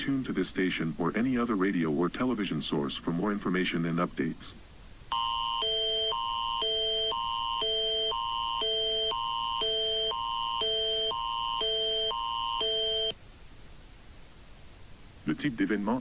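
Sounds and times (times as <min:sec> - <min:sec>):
shrill alternating electronic chords: 0:05.1 - 0:13.2.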